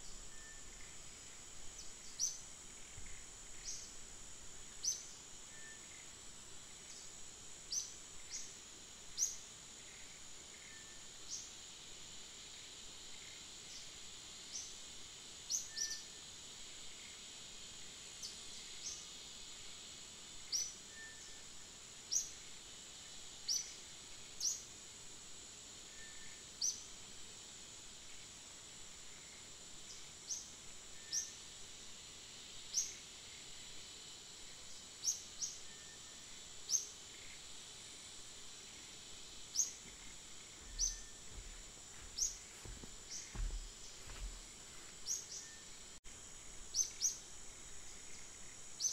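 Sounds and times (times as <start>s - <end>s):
insect drone: 0.0s - 48.9s
bird chirps: 40.7s - 41.3s.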